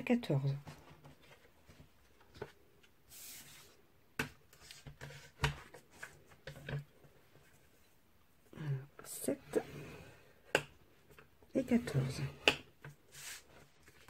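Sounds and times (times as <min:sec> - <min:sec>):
paper sliding: 0:03.1 - 0:03.8, 0:13.1 - 0:14.0.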